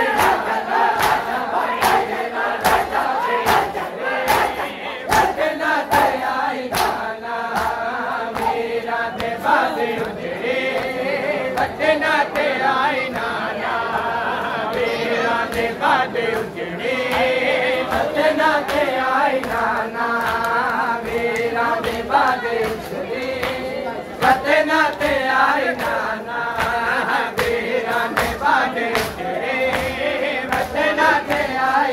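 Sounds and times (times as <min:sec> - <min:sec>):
hands slapping bare chests: 0:00.0 - 0:09.4, 0:24.9 - 0:31.6
crowd of men chanting: 0:00.0 - 0:31.9.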